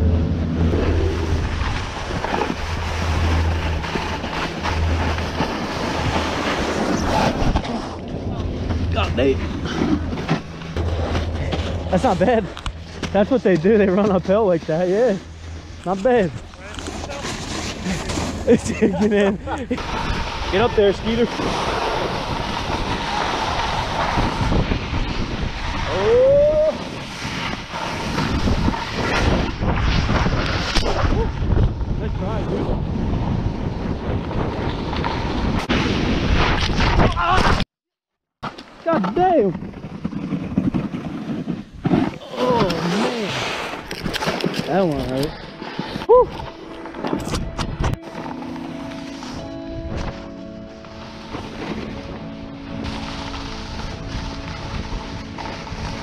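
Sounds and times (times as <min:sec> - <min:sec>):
short rising tone: 0:00.0 - 0:07.2, 0:08.0 - 0:13.4
snowboard scraping across snow: 0:00.0 - 0:36.8, 0:39.2 - 0:56.0
wind buffeting microphone: 0:17.8 - 0:37.1.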